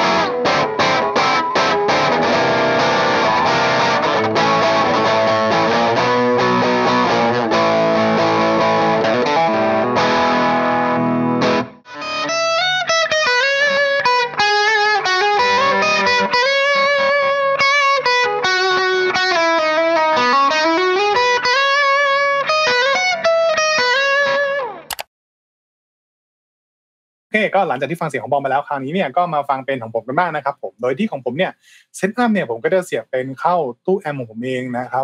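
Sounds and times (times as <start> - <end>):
electric guitar chords: 0.0 - 25.0
electric guitar lead line: 0.0 - 25.0.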